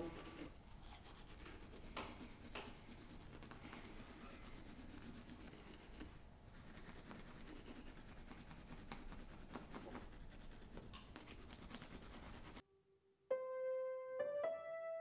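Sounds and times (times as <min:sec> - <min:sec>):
toothbrush scrubbing teeth: 0:00.0 - 0:12.6.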